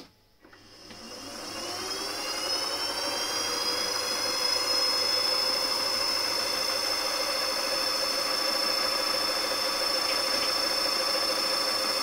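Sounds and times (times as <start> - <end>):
spindle motor whine starting up: 0.5 - 12.0.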